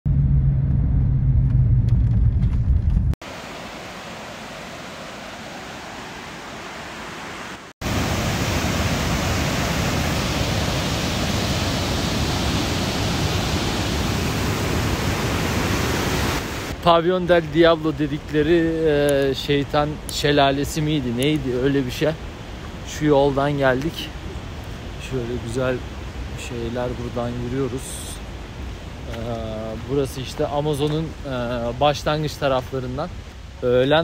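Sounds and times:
loud low rumble with hum: 0.0 - 3.2
waterfall rushing: 3.2 - 34.0.

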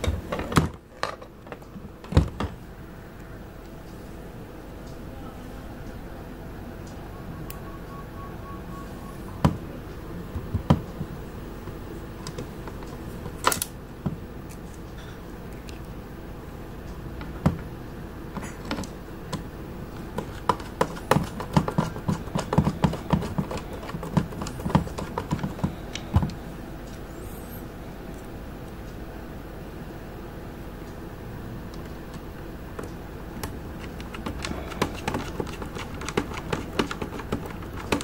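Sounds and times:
plastic clicks and knocks: 32.8 - 38.0.

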